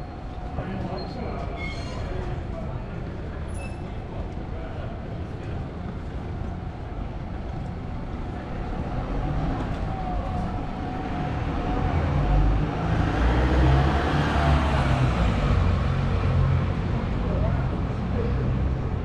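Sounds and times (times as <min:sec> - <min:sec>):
car driving past: 0:08.7 - 0:16.8.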